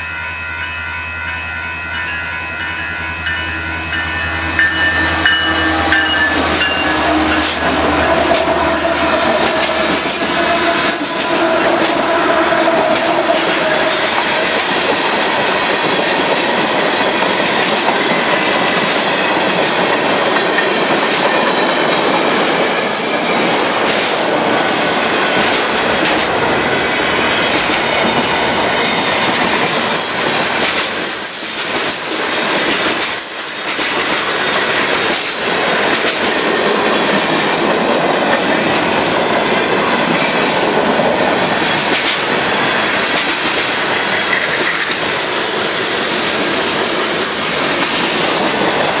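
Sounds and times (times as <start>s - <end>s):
freight train rumbling past: 0.0s - 49.0s
train wheel squeal: 2.6s - 25.0s, 27.1s - 35.5s.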